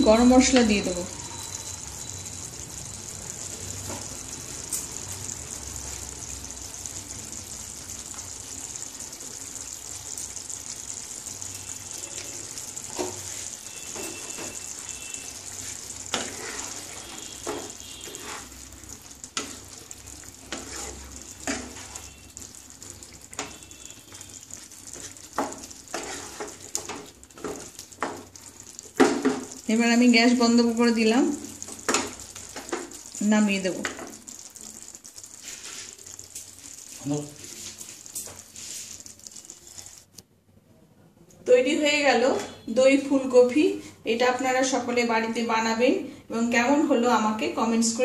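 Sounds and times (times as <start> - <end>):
curry sizzling in a pan: 0.0 - 40.2, 41.5 - 48.0
spatula stirring and knocking pan: 12.0 - 29.6, 31.5 - 40.0.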